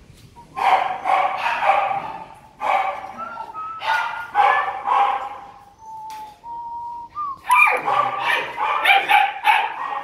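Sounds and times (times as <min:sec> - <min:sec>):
puppies yapping: 0:00.6 - 0:05.9, 0:07.4 - 0:10.0
puppy whining: 0:03.0 - 0:06.4.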